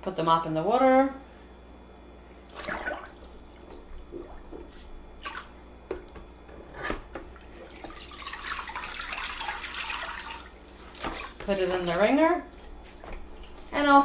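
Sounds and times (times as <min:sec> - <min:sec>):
mop sloshing in water: 0:02.5 - 0:05.7, 0:07.3 - 0:14.0.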